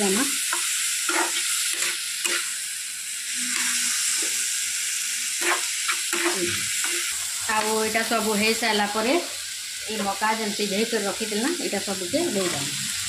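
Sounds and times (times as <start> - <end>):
vegetables sizzling in oil: 0.0 - 13.0
metal spatula scraping: 0.1 - 2.6, 3.3 - 4.4, 5.4 - 7.7.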